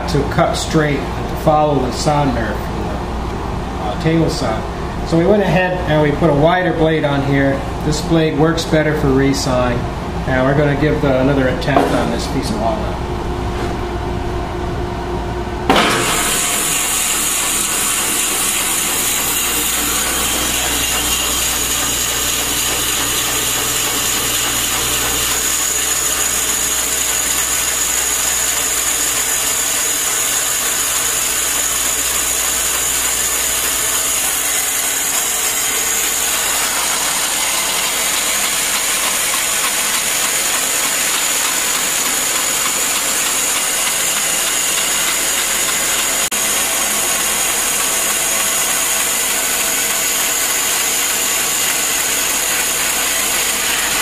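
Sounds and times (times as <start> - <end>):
bandsaw cutting wood: 15.7 - 54.0
bandsaw running: 15.7 - 54.0.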